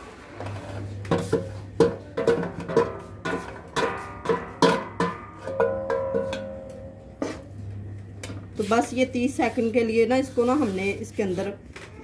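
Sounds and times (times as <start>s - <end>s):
metal spoon knocking on steel pan: 1.1s - 7.0s.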